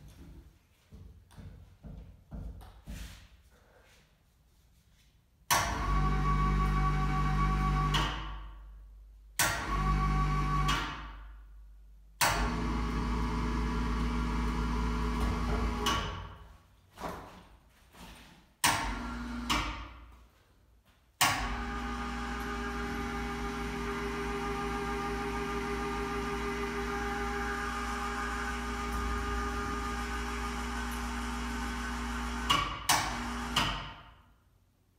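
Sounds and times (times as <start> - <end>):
electric hoist motor whining: 12.3 - 15.9, 18.8 - 19.6, 21.4 - 33.6.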